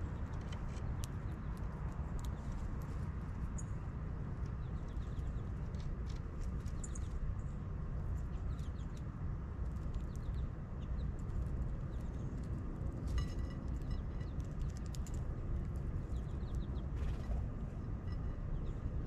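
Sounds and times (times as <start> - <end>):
bird chirps: 6.7 - 7.2.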